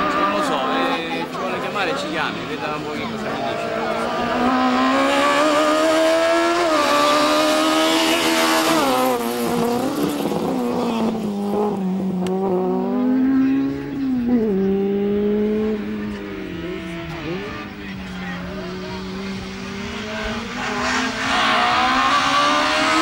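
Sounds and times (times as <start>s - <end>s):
car engine revving hard: 0.0s - 23.0s.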